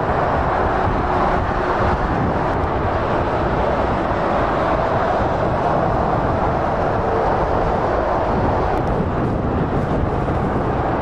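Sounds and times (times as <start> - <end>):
motorway traffic roar: 0.0 - 11.0.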